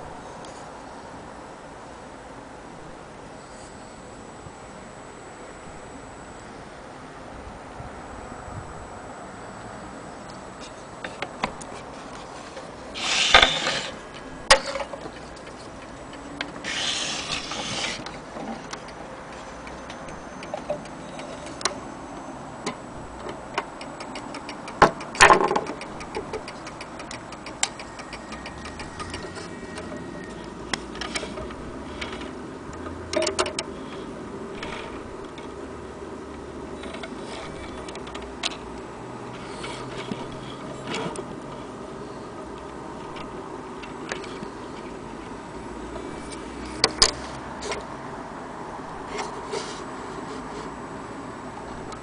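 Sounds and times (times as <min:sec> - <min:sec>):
clock ticking: 0:23.1 - 0:29.9.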